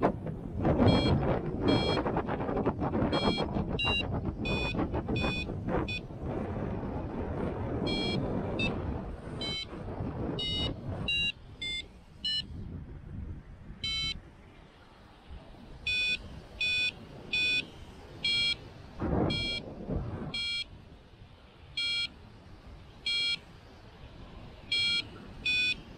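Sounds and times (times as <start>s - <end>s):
wind noise on microphone: 0.0s - 25.9s
variometer electronic beeps: 0.8s - 2.1s, 3.0s - 6.1s, 7.8s - 8.8s, 9.4s - 9.7s, 10.4s - 12.6s, 13.8s - 14.2s, 15.9s - 19.6s, 20.3s - 20.7s, 21.8s - 22.2s, 23.0s - 23.4s, 24.7s - 25.9s.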